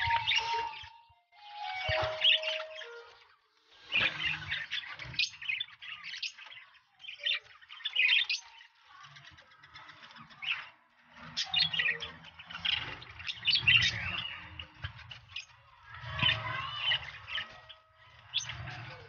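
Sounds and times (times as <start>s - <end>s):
budgerigars chirping: 1.7s - 3.2s, 11.3s - 15.6s.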